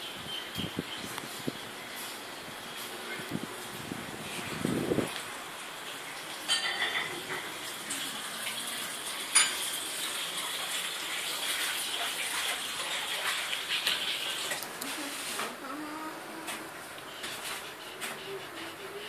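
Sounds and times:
water running from tap: 5.6 - 15.3
dishes and cutlery clinking: 6.4 - 7.6, 9.3 - 9.7.

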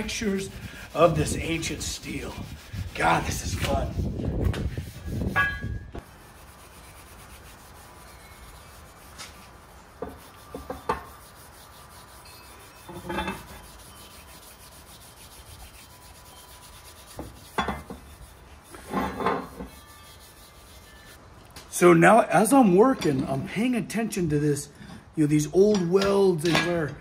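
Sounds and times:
steel wool rasping on metal: 0.0 - 21.2.

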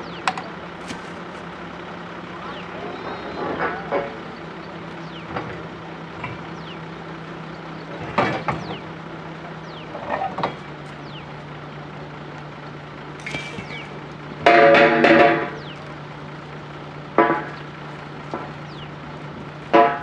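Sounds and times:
drilling rig engine running: 0.0 - 20.0
metallic knocks and clanks: 13.2 - 15.8.

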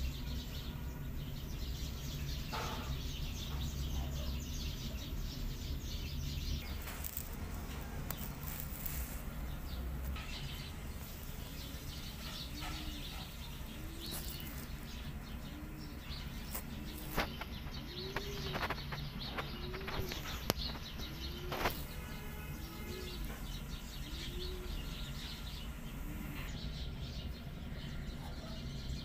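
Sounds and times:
birds chirping: 0.0 - 29.0
soft low cooing call: 12.4 - 23.4, 24.0 - 25.2.

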